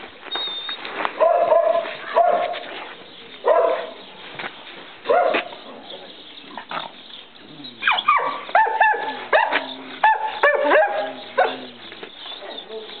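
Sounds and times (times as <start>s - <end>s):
dogs yipping and barking: 0.3s - 2.7s, 3.4s - 4.1s, 5.0s - 5.6s, 6.5s - 13.0s.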